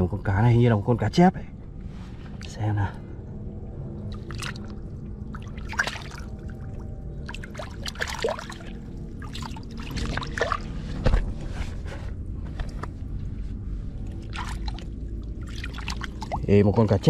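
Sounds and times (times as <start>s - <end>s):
water splashing and sloshing: 1.7s - 17.0s
fish thrashing in water: 4.0s - 11.3s, 14.0s - 16.5s.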